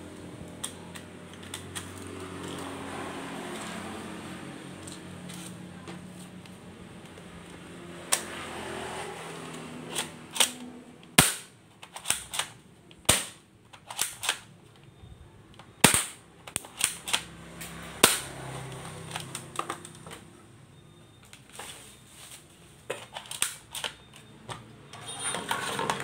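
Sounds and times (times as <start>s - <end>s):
plastic toy gun clicks: 9.9s - 14.5s, 15.8s - 17.3s.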